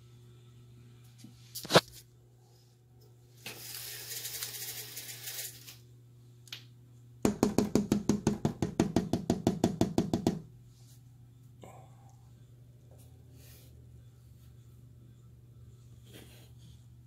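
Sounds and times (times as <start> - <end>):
fast ringing knocks: 7.2 - 10.5.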